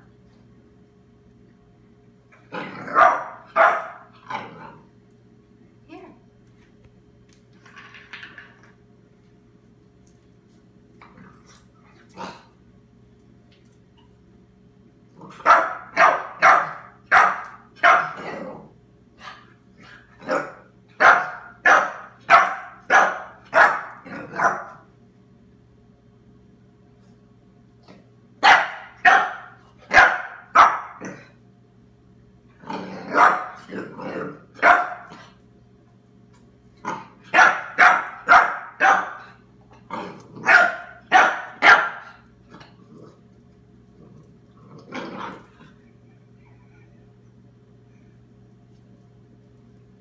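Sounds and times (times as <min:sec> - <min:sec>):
puppy barking: 0:02.8 - 0:04.1, 0:15.4 - 0:18.2, 0:20.3 - 0:24.8, 0:28.4 - 0:31.0, 0:33.1 - 0:33.7, 0:34.6 - 0:35.2, 0:37.3 - 0:39.3, 0:40.4 - 0:42.2.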